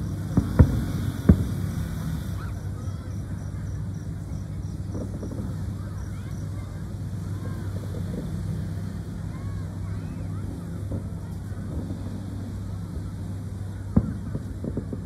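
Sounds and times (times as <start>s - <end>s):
faint firework pops: 0.0s - 2.5s, 4.8s - 5.6s, 13.9s - 15.0s
firework bang: 0.0s - 2.6s, 13.9s - 15.0s
steady low hum: 0.0s - 15.0s.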